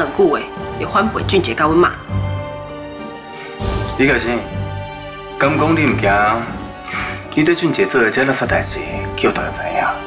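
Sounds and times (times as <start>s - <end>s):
dramatic orchestral score: 0.0s - 10.0s.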